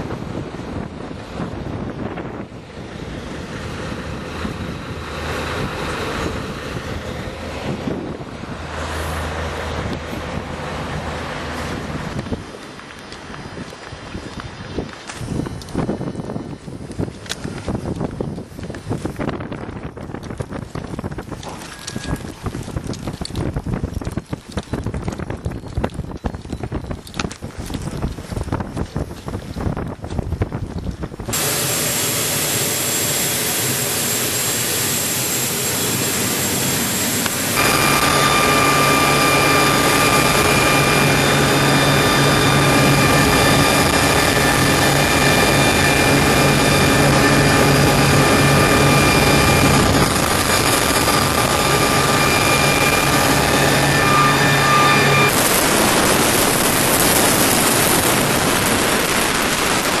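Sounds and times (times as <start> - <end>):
helicopter turbine whine: 0.0 - 23.4, 31.0 - 60.0
rotor and airflow noise: 0.0 - 60.0.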